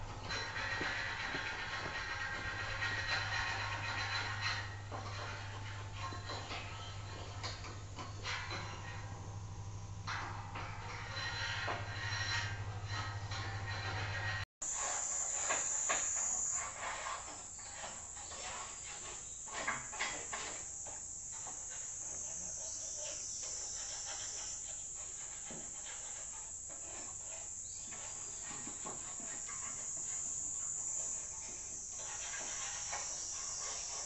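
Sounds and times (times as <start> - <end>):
faint knocks and clatters: 0.0 - 14.5
cicadas buzzing: 14.6 - 34.0.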